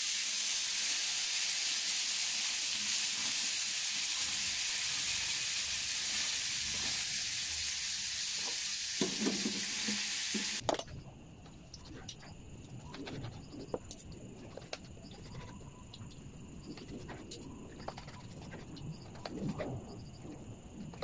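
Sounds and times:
vegetables sizzling in oil: 0.0 - 10.6.

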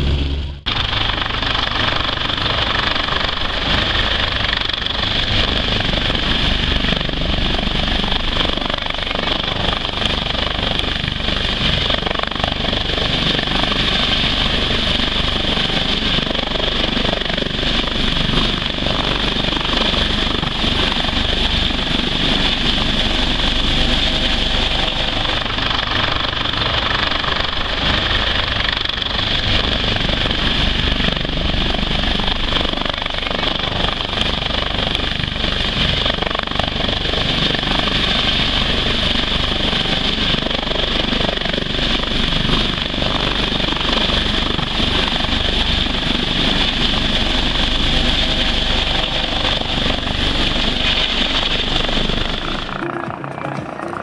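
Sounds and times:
high whine: 0.0 - 31.7
helicopter rotor and turbine: 0.0 - 54.0.

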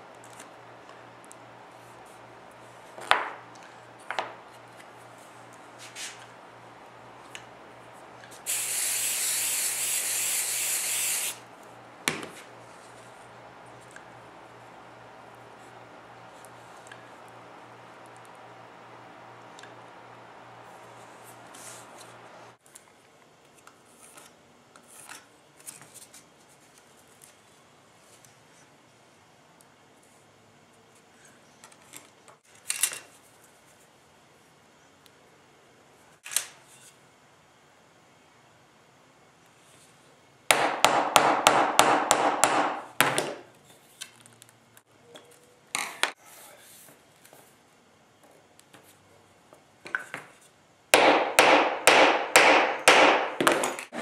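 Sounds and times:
brief scuff: 5.8 - 6.2.

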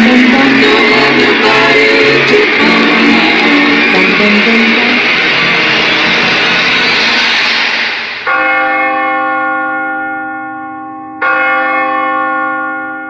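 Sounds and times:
bell ringing: 0.0 - 5.4, 8.2 - 13.0
noisy music wash: 0.0 - 9.4.

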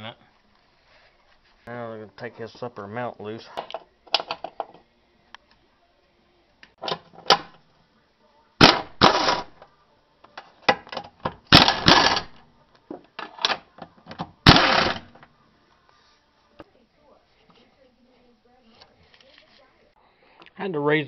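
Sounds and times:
power wrench rattling: 8.6 - 9.5, 11.5 - 12.4, 14.4 - 15.2.

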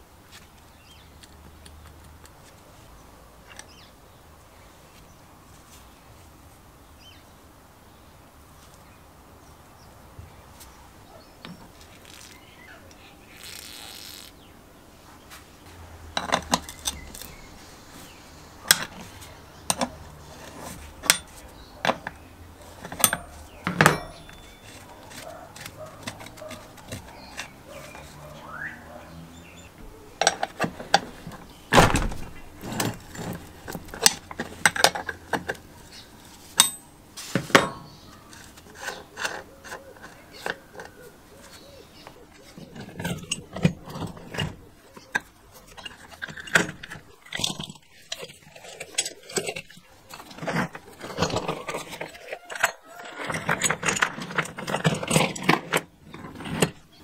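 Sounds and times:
metal parts clinking and knocking: 16.1 - 17.6, 18.6 - 28.2, 29.8 - 57.0.

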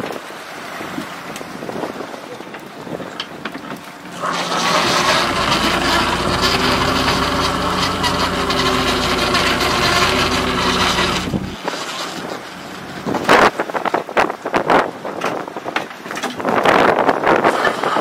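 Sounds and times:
boat engine running: 3.7 - 14.6.

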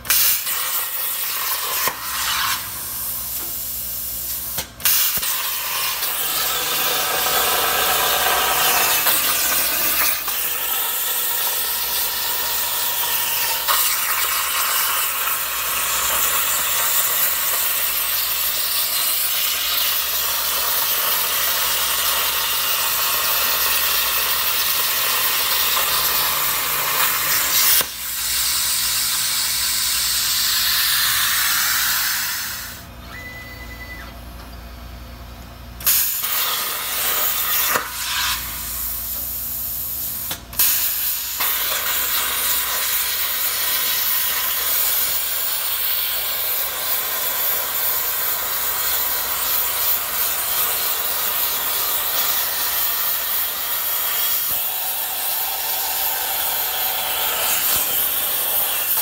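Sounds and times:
plasma arc hissing: 0.0 - 32.9, 35.8 - 59.0
sharp snap: 4.5 - 5.5, 35.8 - 38.3.

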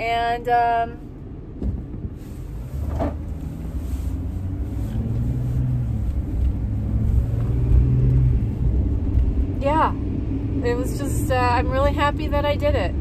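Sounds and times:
road noise: 0.0 - 13.0
van engine rumble: 0.0 - 13.0.

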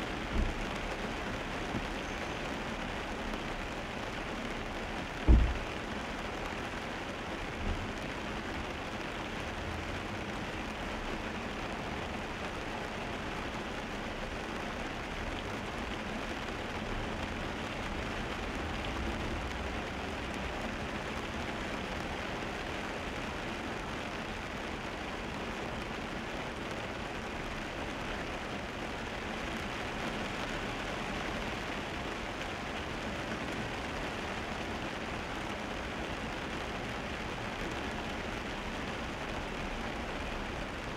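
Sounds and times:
rain on car: 0.0 - 40.9
tyres on wet asphalt: 0.0 - 40.9
car bump: 5.2 - 5.6.

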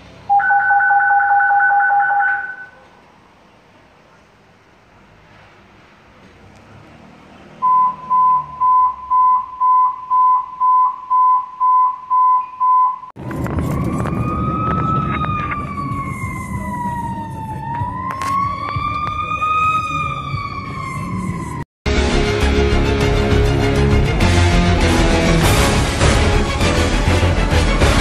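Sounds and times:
road noise: 0.0 - 11.1, 13.1 - 28.0
fire engine siren wailing: 0.3 - 2.8, 13.2 - 21.7
short electronic beeps: 7.6 - 13.1.

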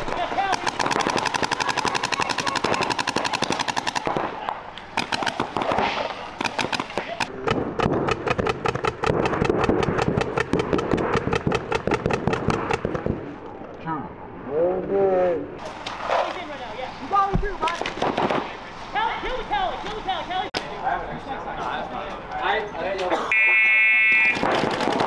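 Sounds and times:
paintball markers firing: 0.0 - 13.2, 24.2 - 25.0.

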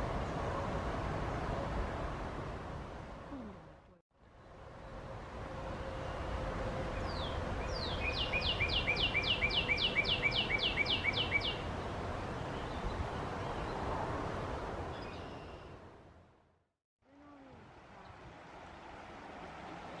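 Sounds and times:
bird singing whistles: 7.0 - 11.6.

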